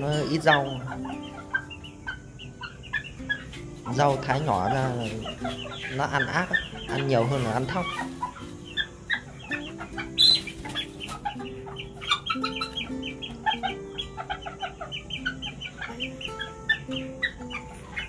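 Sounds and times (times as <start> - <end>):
background music melody: 0.0 - 18.0
chickens clucking: 0.0 - 18.0.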